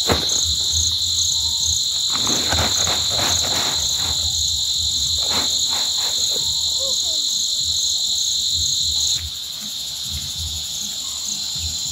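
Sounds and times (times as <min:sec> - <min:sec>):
grass rustling into plastic sack: 0:00.0 - 0:06.9
insects buzzing and chirping: 0:00.0 - 0:11.9.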